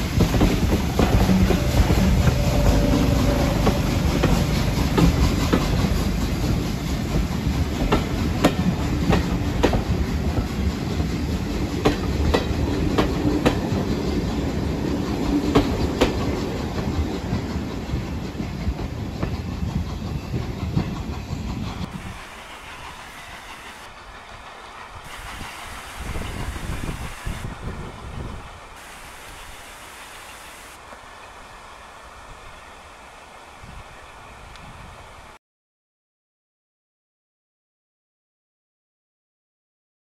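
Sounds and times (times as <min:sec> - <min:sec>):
wheels clicking over rail joints: 0:00.0 - 0:31.2
train wheels rumbling on rail: 0:00.0 - 0:32.6.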